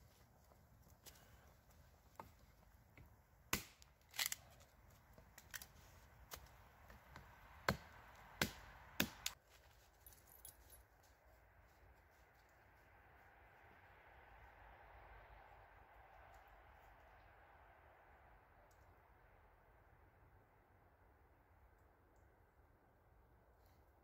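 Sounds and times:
hatchet chopping wood: 0:03.5 - 0:03.9, 0:06.3 - 0:09.4.

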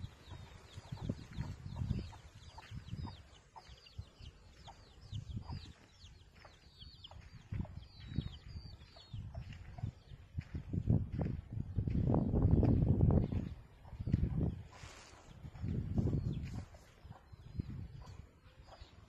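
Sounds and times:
chickens clucking and peeping: 0:00.0 - 0:19.0
thumps and rumbles on microphone: 0:00.9 - 0:03.2, 0:07.1 - 0:14.7, 0:15.3 - 0:16.8.

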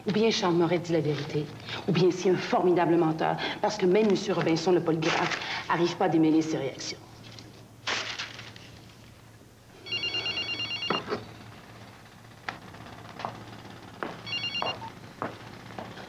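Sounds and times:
telephone ringing electronic trill: 0:09.7 - 0:11.6, 0:14.2 - 0:15.3.

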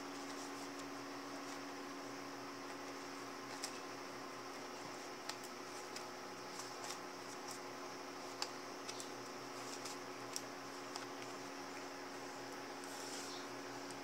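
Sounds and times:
steady background hum: 0:00.0 - 0:14.0
notebook handling clicks and taps: 0:05.2 - 0:07.6, 0:08.3 - 0:11.9.

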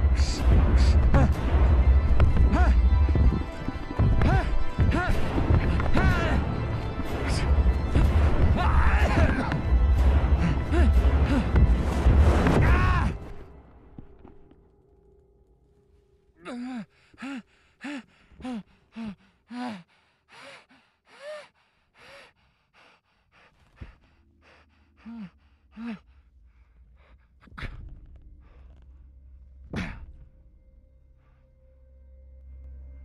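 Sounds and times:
man panting and gasping: 0:09.0 - 0:11.8, 0:16.5 - 0:28.8.

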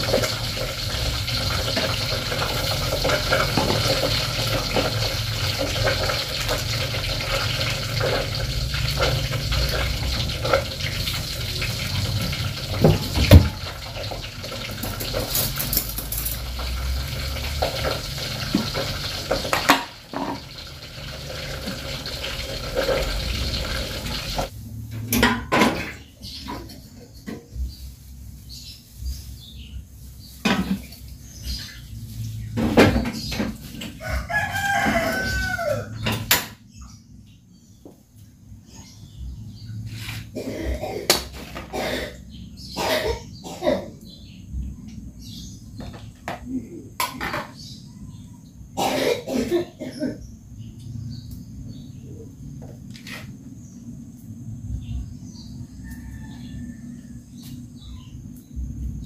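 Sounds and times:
dishes clattering: 0:00.0 - 0:24.5, 0:25.1 - 0:27.5, 0:45.8 - 0:47.6
water running: 0:00.0 - 0:24.5.

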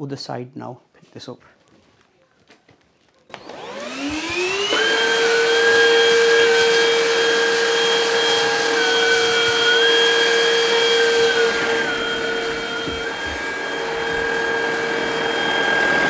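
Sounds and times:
vacuum cleaner motor whine: 0:03.3 - 0:16.0.

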